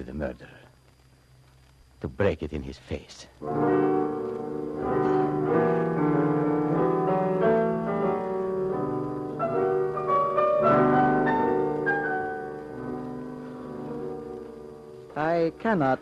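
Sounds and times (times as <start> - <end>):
instrumental music with held chords: 3.4 - 16.0.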